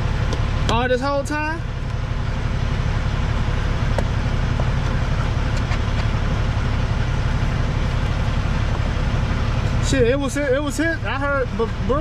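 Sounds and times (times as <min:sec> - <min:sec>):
truck diesel engine idling: 0:00.0 - 0:12.0.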